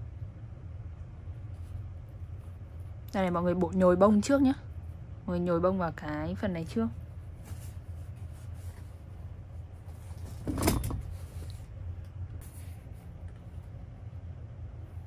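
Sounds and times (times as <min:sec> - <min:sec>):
steady low hum: 0:00.0 - 0:15.0
faint rustling of stuffing: 0:06.4 - 0:10.4
handling noise: 0:07.3 - 0:11.8.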